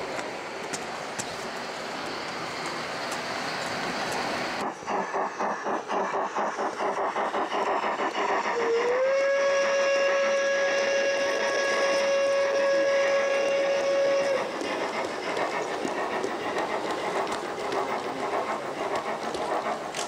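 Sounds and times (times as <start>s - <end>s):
steam locomotive chuffing: 0.0s - 20.0s
long steady train whistle: 8.3s - 15.2s.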